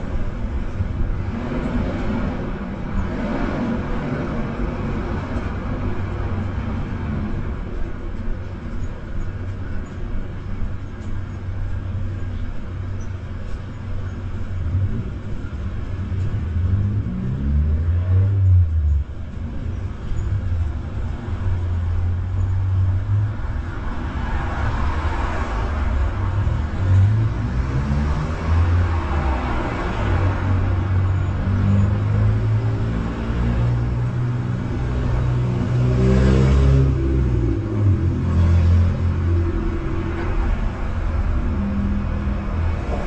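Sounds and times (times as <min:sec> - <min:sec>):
cars passing on street: 0:00.0 - 0:43.0
loud car passing: 0:21.0 - 0:43.0
engine rising in pitch: 0:26.2 - 0:43.0.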